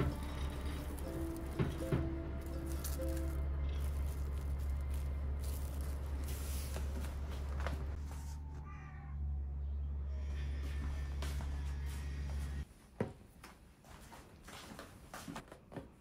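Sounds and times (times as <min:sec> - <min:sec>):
cling film crinkling: 0:00.0 - 0:08.0.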